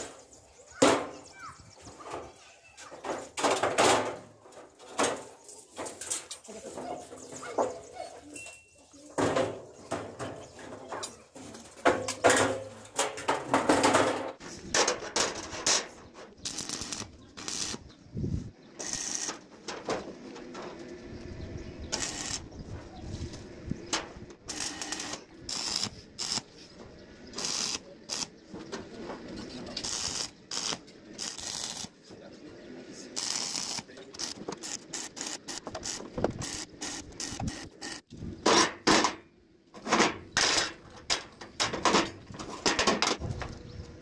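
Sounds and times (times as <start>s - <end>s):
sheet metal clanking and rattling: 9.2s - 16.2s
arc welding crackling: 15.2s - 17.9s, 18.8s - 19.5s, 21.9s - 22.5s, 24.4s - 26.5s, 27.4s - 28.4s, 29.8s - 32.0s, 33.1s - 38.1s.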